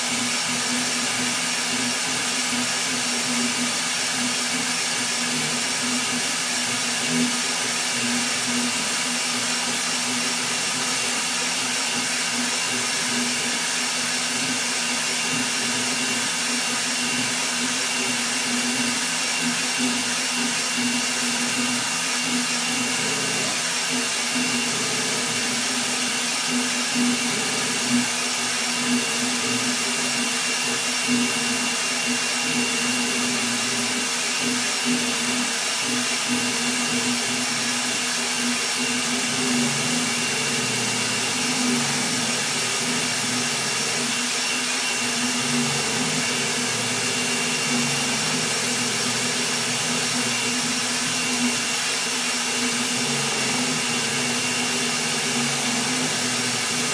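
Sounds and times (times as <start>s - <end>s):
cooling fans whirring: 0.0s - 56.9s.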